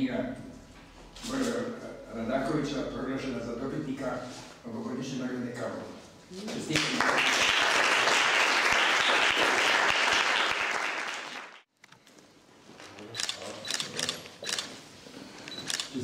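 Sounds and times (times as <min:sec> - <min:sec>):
audience applauding: 0:06.7 - 0:11.7
camera shutter clicks: 0:13.2 - 0:14.8, 0:15.5 - 0:16.0.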